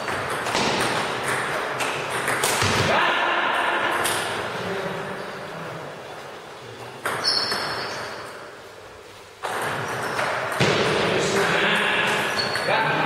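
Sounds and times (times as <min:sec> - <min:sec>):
table tennis ball hits and bounces: 0:00.0 - 0:04.5, 0:06.8 - 0:08.5, 0:09.4 - 0:13.0.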